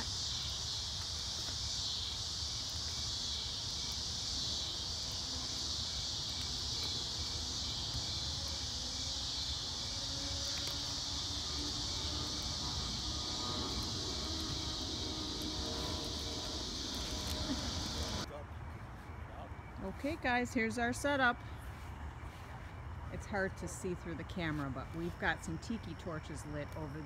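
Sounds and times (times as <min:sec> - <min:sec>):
regular chirping pulse: 0:00.0 - 0:18.3
crickets chirping: 0:00.0 - 0:27.0
low rumble: 0:06.6 - 0:18.3.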